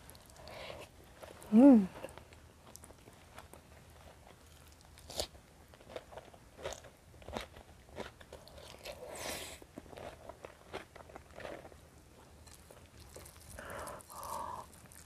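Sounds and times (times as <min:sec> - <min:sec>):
person chewing food: 0:00.0 - 0:15.0
crisp crunches: 0:12.6 - 0:15.0
breathy hiss: 0:13.5 - 0:14.8.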